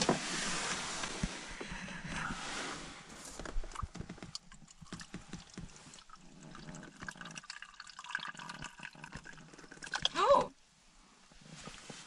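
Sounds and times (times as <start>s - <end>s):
tea trickling into a cup: 4.4s - 10.2s.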